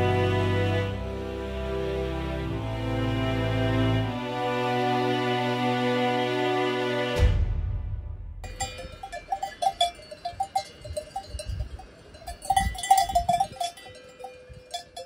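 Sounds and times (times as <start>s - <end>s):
low rumbles: 7.4s - 14.8s
cowbells clanking: 8.4s - 15.0s.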